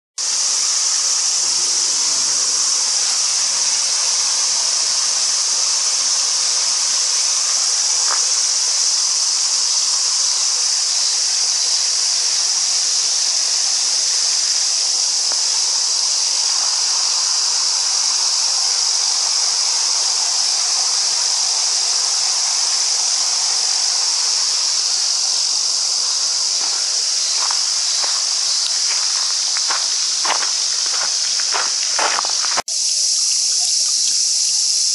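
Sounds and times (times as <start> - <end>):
cicadas droning: 0.2 - 34.9
footsteps on gravel: 7.4 - 8.4, 25.5 - 32.6.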